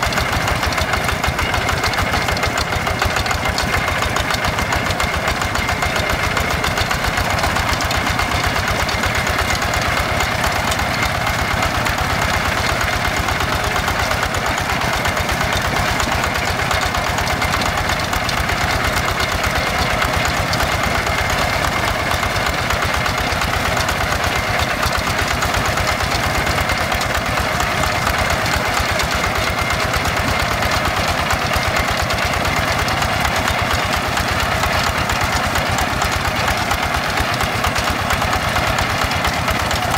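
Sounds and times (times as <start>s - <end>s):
diesel hand tractor engine running: 0.0s - 39.9s.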